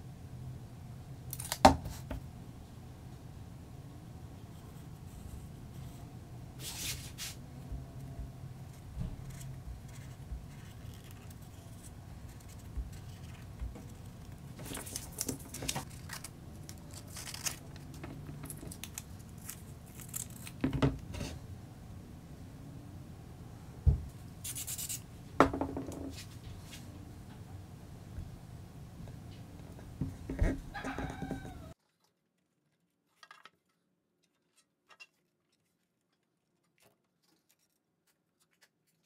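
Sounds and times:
scissors cutting paper: 0:09.0 - 0:20.6.

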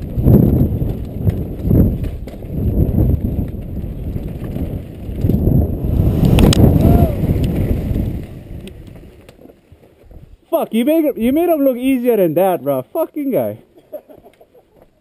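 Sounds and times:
wind on microphone: 0:00.0 - 0:09.3
bike rattling: 0:00.0 - 0:10.5
rumble of rolling tyres: 0:00.0 - 0:10.5.

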